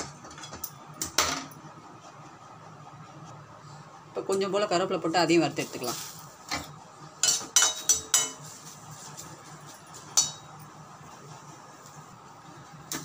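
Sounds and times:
metal utensil clinking on a pan: 7.2s - 8.5s, 10.2s - 10.6s.

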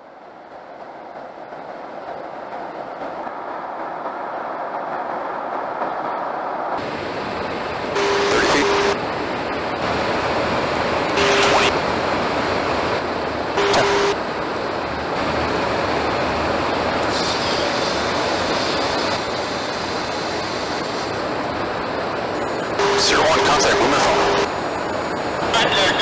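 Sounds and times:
aircraft engine noise: 6.8s - 26.0s.

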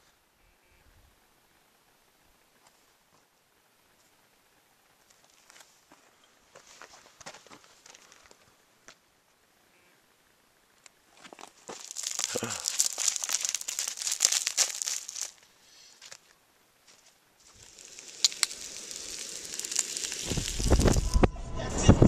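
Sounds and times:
dense crackling and rustling: 11.1s - 21.3s
hiss: 17.4s - 21.3s.

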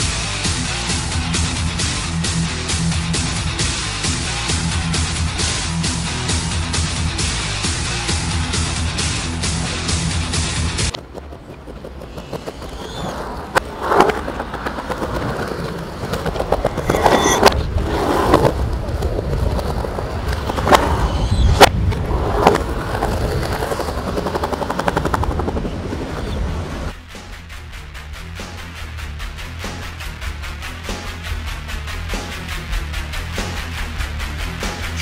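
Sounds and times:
skateboard wheels rolling on concrete: 0.0s - 35.0s
skateboard clacking on ground: 10.8s - 27.0s
fast clicks: 22.4s - 26.4s.

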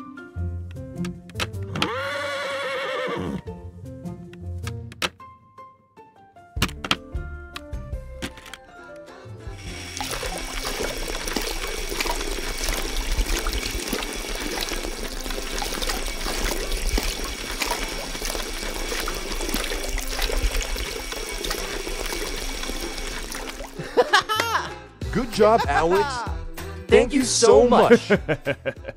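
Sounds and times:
small electric motor humming: 9.6s - 23.3s
water trickling into toy truck: 9.6s - 23.9s.

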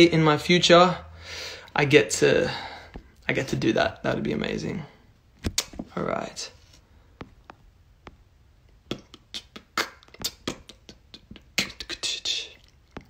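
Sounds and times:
short breath: 1.1s - 1.7s
fingers tapping on touchscreen: 7.1s - 12.0s.

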